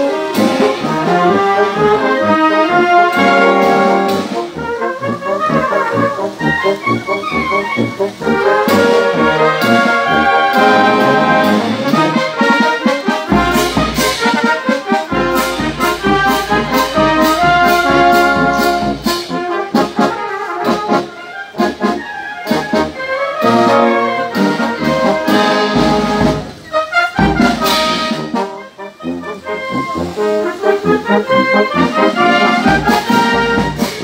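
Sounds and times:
bass drum and cymbal beat: 0:00.0 - 0:04.7, 0:08.0 - 0:21.1, 0:23.7 - 0:28.5, 0:31.5 - 0:34.0
wind band playing a march: 0:00.0 - 0:34.0.

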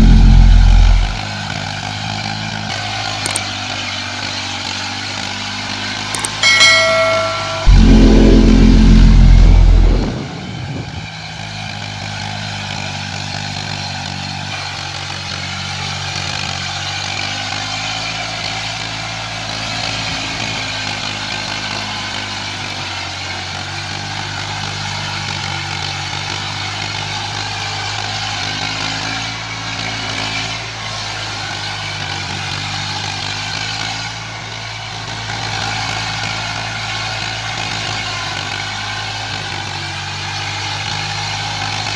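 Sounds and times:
high wavering whine: 0:00.0 - 0:01.2, 0:06.4 - 0:11.1
loud low rumble: 0:00.0 - 0:01.2, 0:07.6 - 0:11.1
tractor diesel engine running: 0:00.0 - 0:26.0.

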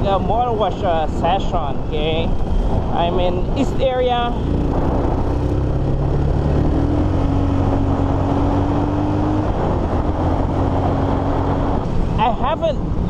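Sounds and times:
wind rush: 0:00.0 - 0:13.0
motorcycle engine under throttle: 0:02.4 - 0:12.1.

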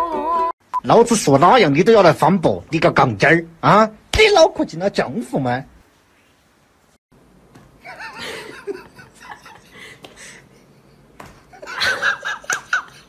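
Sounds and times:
person laughing: 0:07.8 - 0:13.0.

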